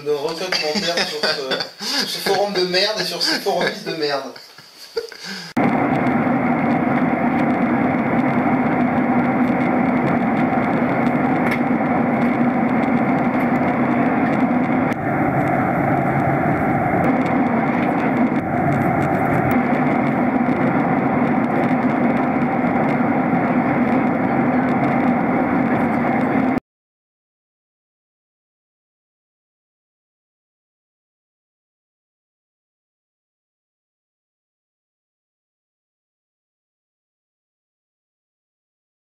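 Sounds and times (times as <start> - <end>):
faint steady hum: 0.0 - 26.6
jet engine drone and rushing air: 5.5 - 26.6.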